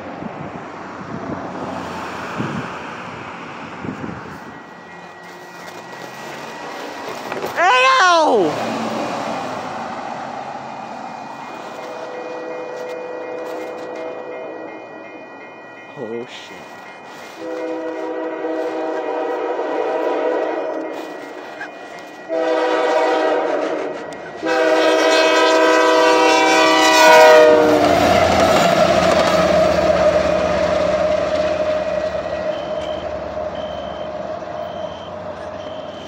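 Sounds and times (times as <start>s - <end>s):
train wheels rumbling and rattling: 0.0s - 7.6s, 16.4s - 36.0s
locomotive air horn blasts: 11.8s - 14.7s, 17.3s - 21.3s, 22.3s - 27.9s.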